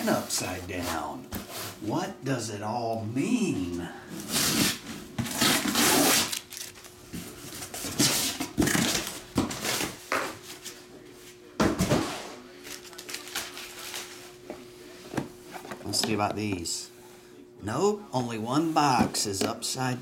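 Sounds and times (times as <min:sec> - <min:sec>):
boxes rustling and scraping: 0:00.0 - 0:01.9, 0:03.8 - 0:10.9.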